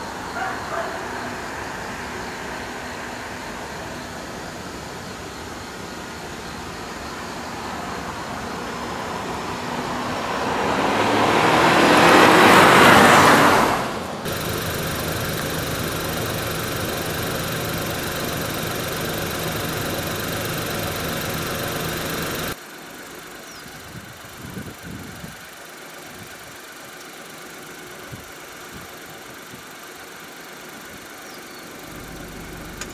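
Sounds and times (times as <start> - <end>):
car driving past: 8.8 - 22.6
car engine idling: 12.3 - 32.9.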